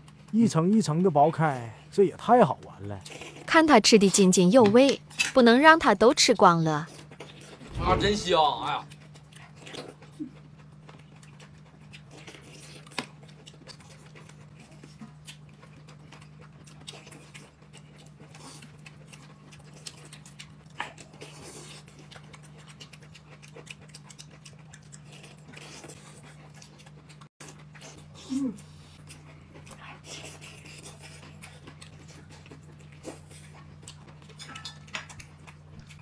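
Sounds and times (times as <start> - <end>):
chewing and slurping: 0.0 - 4.2, 6.8 - 7.8, 8.8 - 36.0
steady low hum: 7.3 - 9.4.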